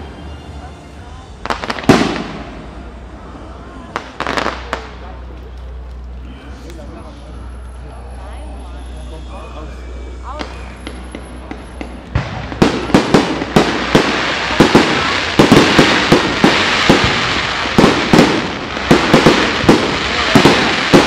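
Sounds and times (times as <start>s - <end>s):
continuous hiss: 0.0s - 21.0s
fireworks bangs: 1.4s - 3.1s, 3.9s - 5.3s, 10.2s - 21.0s.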